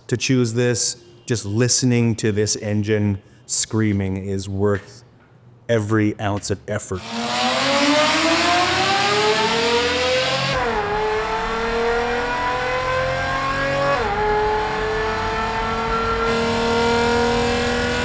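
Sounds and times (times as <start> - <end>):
car engine accelerating through gears: 7.0 - 18.0.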